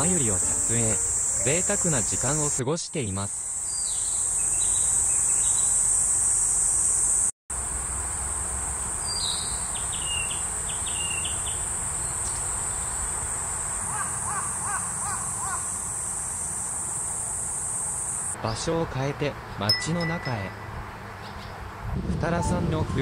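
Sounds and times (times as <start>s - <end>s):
high-pitched insect drone: 0.0s - 7.3s, 12.7s - 18.4s.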